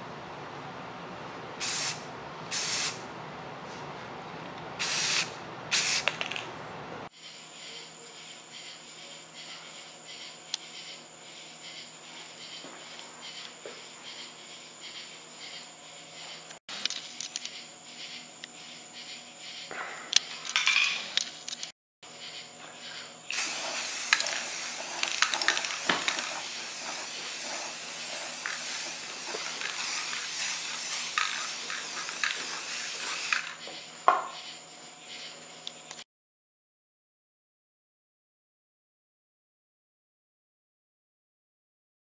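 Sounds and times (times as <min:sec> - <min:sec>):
spray paint can hissing: 0:01.6 - 0:03.0, 0:04.8 - 0:06.4, 0:23.3 - 0:33.7.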